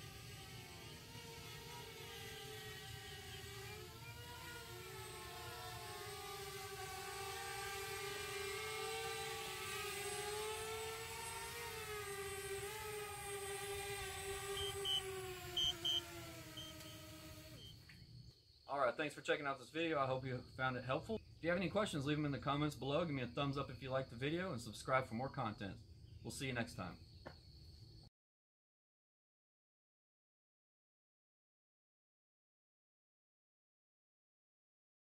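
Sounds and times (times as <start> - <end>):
drone propellers humming: 0.0 - 18.2.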